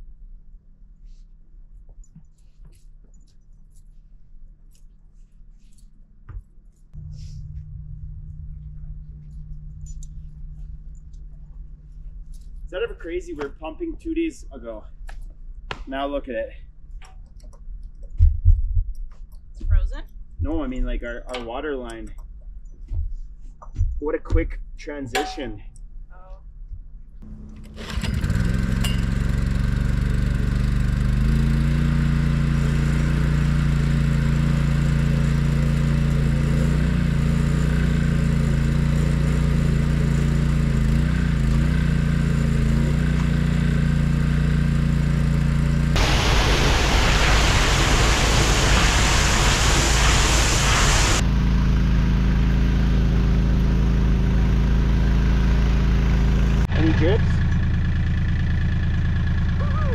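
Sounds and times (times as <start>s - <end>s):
engine running steadily: 7.0s - 18.6s, 27.2s - 59.9s
loud rushing hiss: 46.0s - 51.2s.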